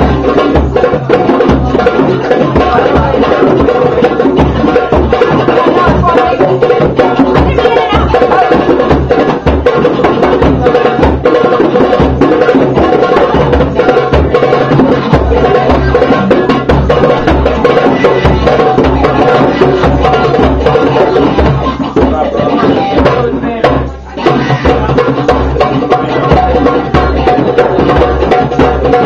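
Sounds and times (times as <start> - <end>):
djembes playing rhythm: 0.0 - 29.0.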